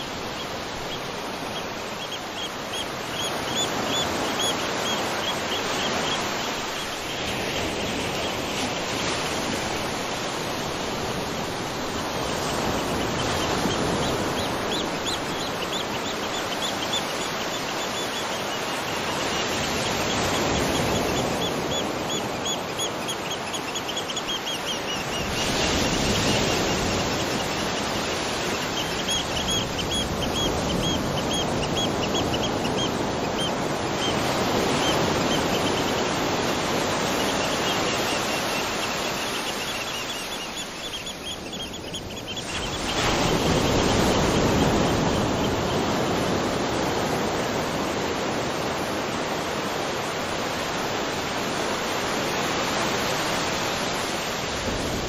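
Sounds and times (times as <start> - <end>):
small bird chirping: 37.0 - 45.2.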